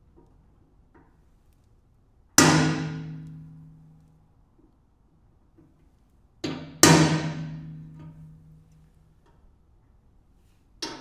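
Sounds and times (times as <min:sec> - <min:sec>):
hammer striking metal punch: 0:02.4 - 0:03.5, 0:06.4 - 0:08.1.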